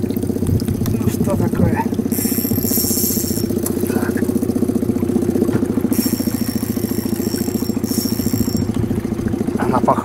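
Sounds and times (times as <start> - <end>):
outboard motor running: 0.0 - 10.0
high thin whine: 2.1 - 4.2, 5.9 - 9.1.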